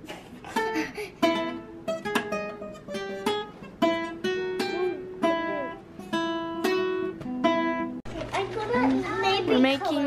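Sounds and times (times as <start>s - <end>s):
acoustic guitar plucked notes: 0.5s - 8.0s.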